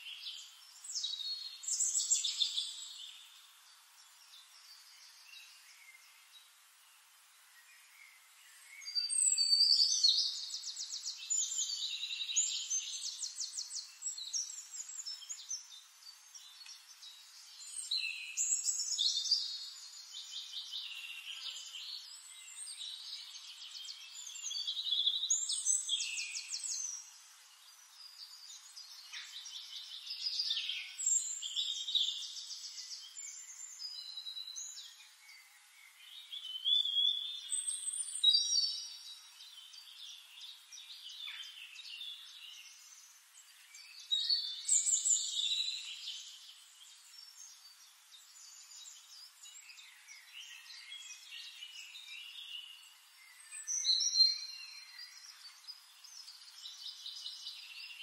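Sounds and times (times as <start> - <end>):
songbirds chirping and trilling: 0.0 - 58.0.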